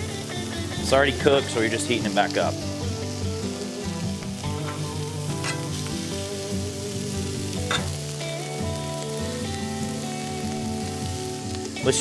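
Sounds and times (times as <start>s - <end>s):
food sizzling on griddle: 0.0s - 12.0s
metal spatula scraping steel: 4.5s - 5.8s.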